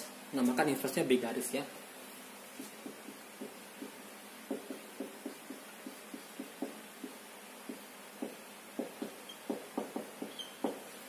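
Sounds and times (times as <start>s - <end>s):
marker writing on whiteboard: 2.6s - 10.9s.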